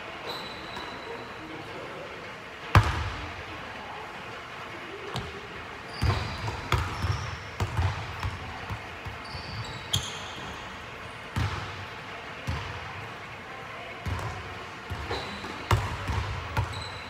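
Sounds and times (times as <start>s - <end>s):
sneakers squeaking on court: 0.2s - 1.3s, 5.1s - 11.7s, 14.0s - 17.0s
basketball bouncing on hardwood floor: 6.0s - 9.2s.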